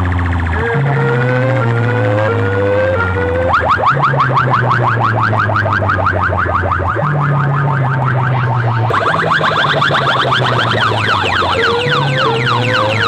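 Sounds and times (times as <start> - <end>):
deep bass drone: 0.0 - 13.0
rapid rising electronic chirps: 0.0 - 13.0.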